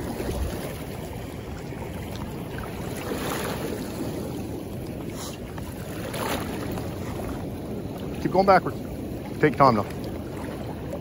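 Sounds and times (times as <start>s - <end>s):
river flowing: 0.0s - 11.0s
wind on microphone: 0.0s - 11.0s.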